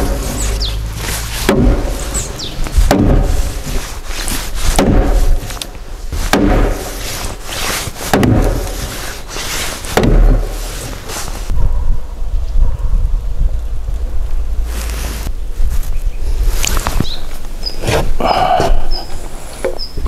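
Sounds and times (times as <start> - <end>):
wooden mallet striking timber: 0.0 - 3.8, 4.7 - 7.1, 8.0 - 9.0, 9.9 - 10.6.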